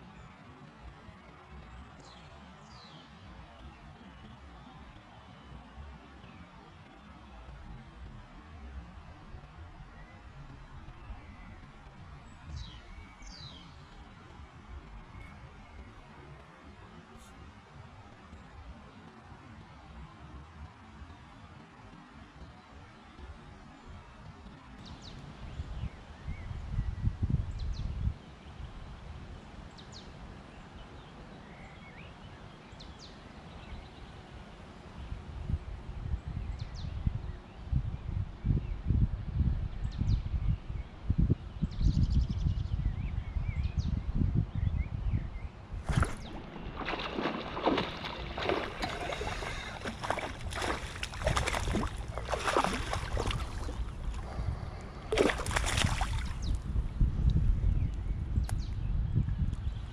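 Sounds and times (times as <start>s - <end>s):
wind rumble on microphone: 0.0s - 59.9s
fish splashing water: 45.8s - 54.4s, 55.1s - 56.4s.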